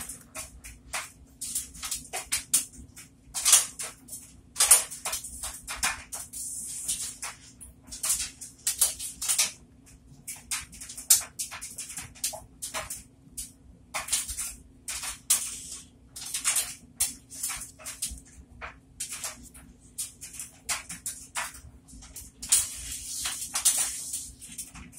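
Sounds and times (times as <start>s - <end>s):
crackling suds: 0.0s - 24.9s
sponge squelching in soapy foam: 22.0s - 24.9s.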